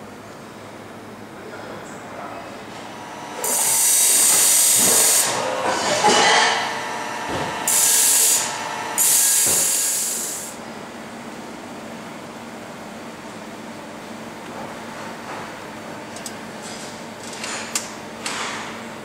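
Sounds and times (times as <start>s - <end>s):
disc sander grinding metal pipe: 2.9s - 10.5s.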